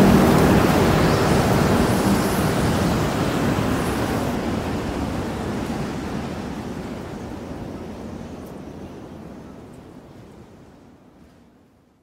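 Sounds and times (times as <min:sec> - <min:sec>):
surf rushing: 0:00.0 - 0:05.3
wind: 0:00.0 - 0:12.0.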